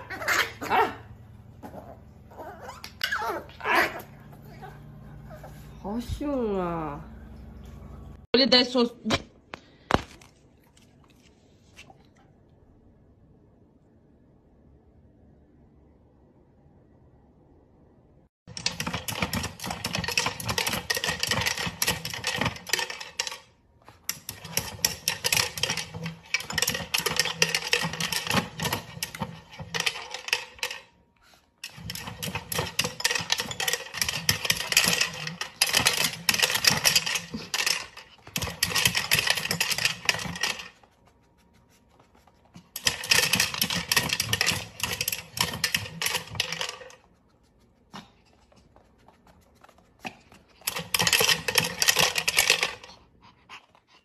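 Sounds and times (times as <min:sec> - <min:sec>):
treats rattling in spinning wheel: 0:18.5 - 0:30.9, 0:31.6 - 0:40.8, 0:42.7 - 0:47.1, 0:50.6 - 0:53.0.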